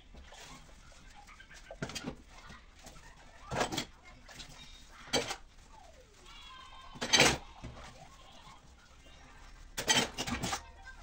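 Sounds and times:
dishes being washed at sink: 0.0 - 5.5, 6.8 - 8.2, 9.5 - 11.0
dishes clattering: 3.4 - 5.4, 6.9 - 7.9, 9.7 - 10.7.

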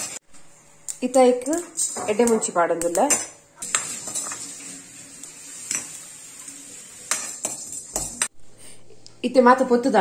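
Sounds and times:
spoon scraping seeds in pan: 1.0 - 6.0, 7.0 - 8.3.

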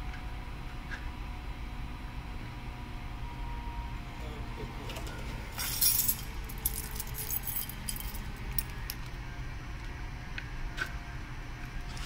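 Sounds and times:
steady low hum: 0.0 - 12.0
keys and padlock jangling: 5.6 - 9.0.

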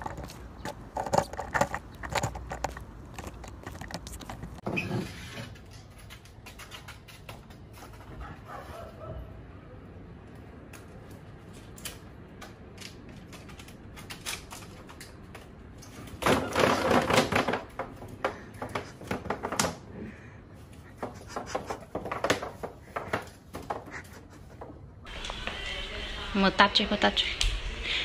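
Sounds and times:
bamboo tray scraping on tiled floor: 4.6 - 6.1.

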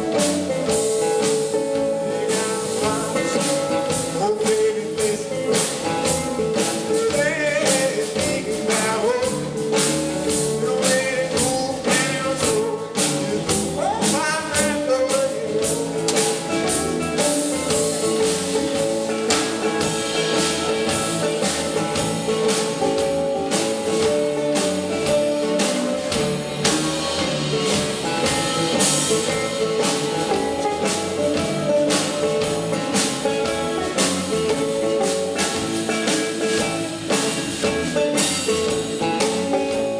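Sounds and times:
blues band playing: 0.0 - 39.9
steady drumbeat: 0.0 - 39.9
man singing: 1.8 - 18.2.

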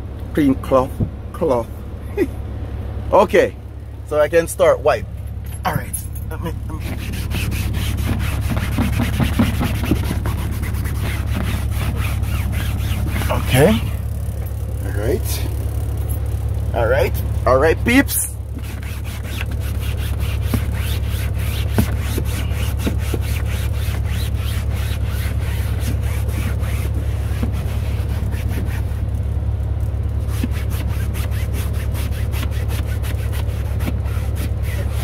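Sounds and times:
cloth scrubbing: 6.7 - 14.0, 18.5 - 29.0, 30.2 - 35.0.

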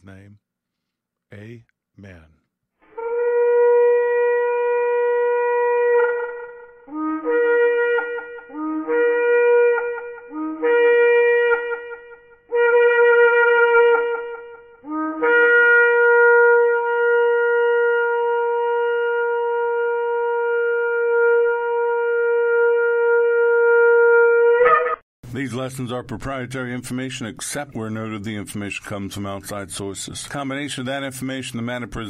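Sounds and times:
shofar blasts: 2.8 - 25.0.

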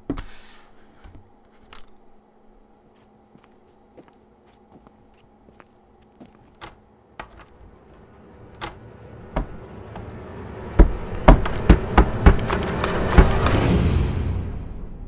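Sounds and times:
fists banging on a door: 9.4 - 9.6, 10.8 - 13.6.

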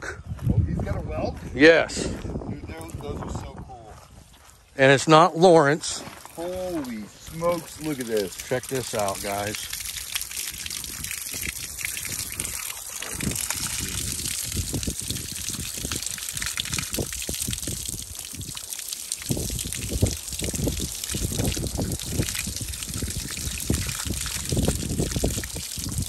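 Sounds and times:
water running from hose: 5.1 - 26.0
water spattering on wet ground: 5.8 - 26.0
water splashing over hands and shell: 6.2 - 26.0.

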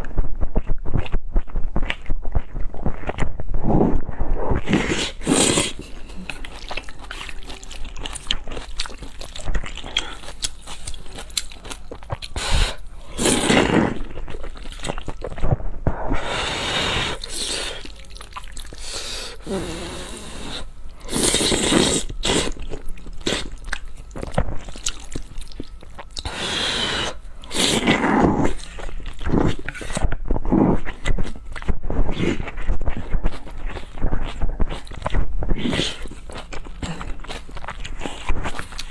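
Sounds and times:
chewing and lip-smacking: 0.0 - 3.5, 4.6 - 15.6, 16.2 - 38.9
wet noodle slurps: 2.9 - 7.3, 12.3 - 15.4, 16.2 - 23.6.

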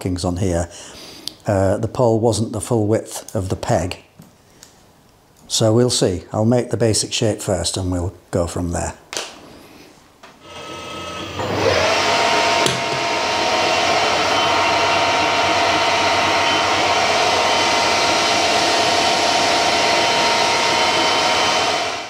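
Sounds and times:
metal lathe gear whine: 10.4 - 22.0.

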